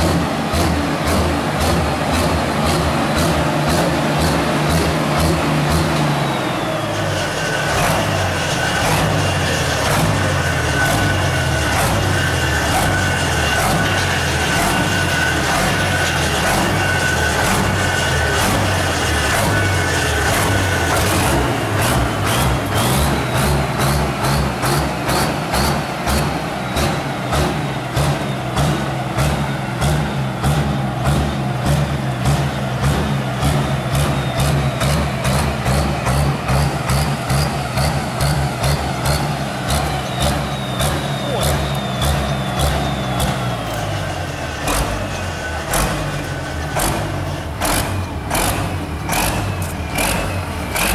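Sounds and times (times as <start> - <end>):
tractor engine running at low speed: 0.0 - 50.9.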